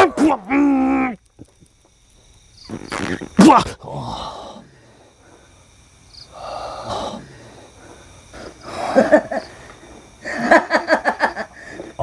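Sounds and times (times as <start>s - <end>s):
man's breathy hissing exhalation: 3.8s - 10.5s, 11.5s - 12.0s.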